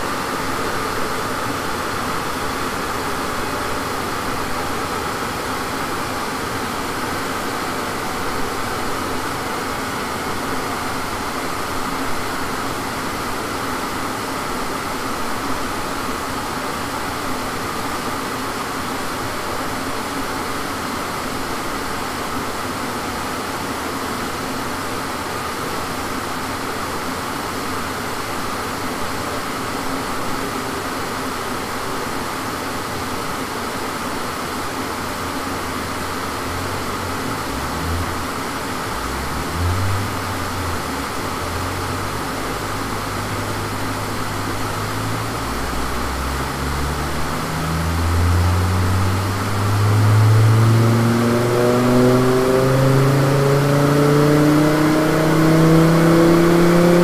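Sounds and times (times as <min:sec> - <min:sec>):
cooling fans rushing air: 0:35.3 - 0:57.0.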